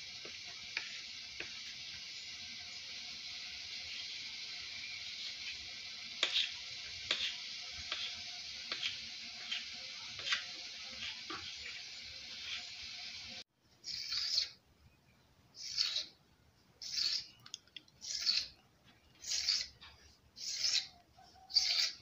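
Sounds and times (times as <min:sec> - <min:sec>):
steady hiss: 0:00.0 - 0:14.6.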